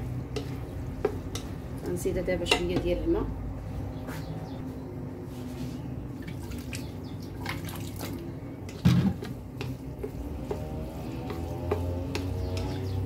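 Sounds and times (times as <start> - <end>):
wooden spoon scraping and tapping: 0.0 - 3.1, 8.6 - 13.0.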